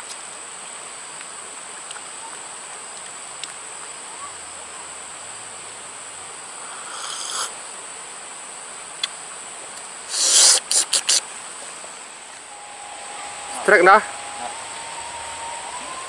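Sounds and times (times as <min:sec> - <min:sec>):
background hiss: 0:00.0 - 0:16.0
high-pitched insect drone: 0:12.3 - 0:16.0
loud noise bursts: 0:12.4 - 0:16.0.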